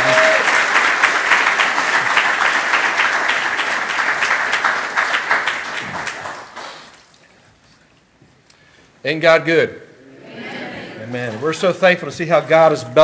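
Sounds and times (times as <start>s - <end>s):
congregation applauding: 0.0s - 7.0s.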